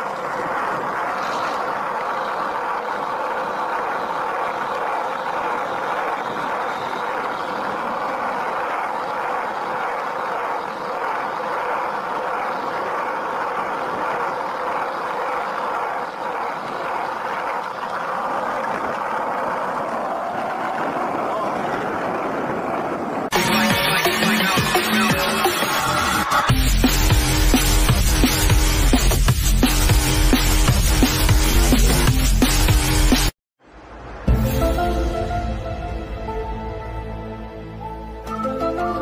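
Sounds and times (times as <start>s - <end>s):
skateboard wheels rolling on asphalt: 0.0s - 24.4s.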